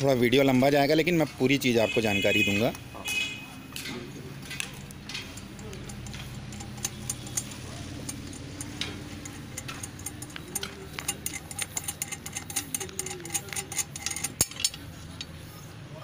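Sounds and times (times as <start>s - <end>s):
small metallic clicks and taps: 2.6s - 15.4s
steady low hum: 4.1s - 16.0s.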